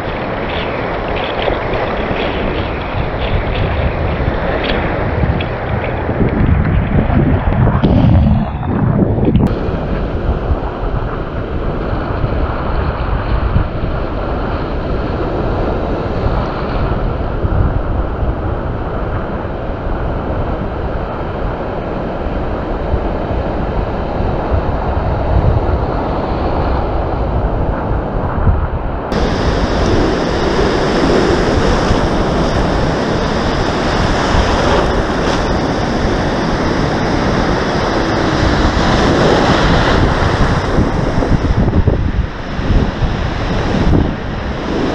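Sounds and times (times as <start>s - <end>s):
wind buffeting microphone: 0.0s - 44.9s
small surf breaking: 29.1s - 44.9s.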